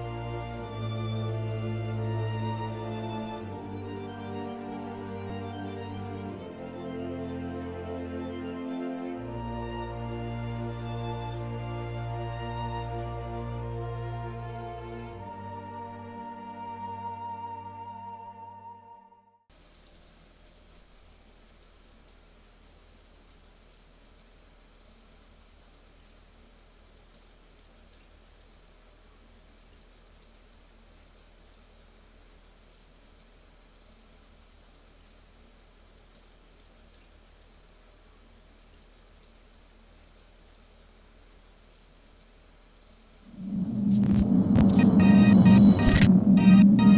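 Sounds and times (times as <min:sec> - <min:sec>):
shower spray running: 0:19.5 - 0:46.9.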